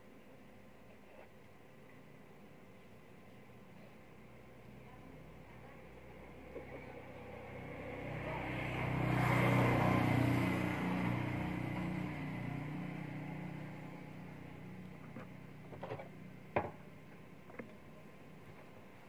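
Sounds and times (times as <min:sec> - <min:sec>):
motor vehicle passing by: 0:06.4 - 0:15.4.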